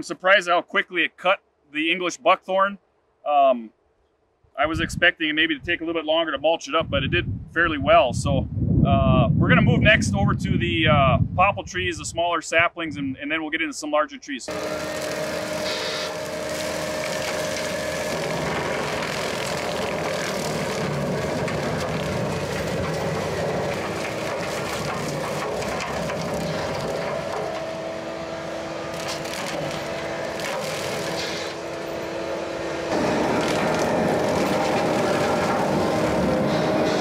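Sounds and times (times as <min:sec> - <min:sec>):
diesel engine running hard: 0:14.5 - 0:37.0
mower blades cutting saplings: 0:14.5 - 0:37.0
steady whine: 0:14.5 - 0:37.0.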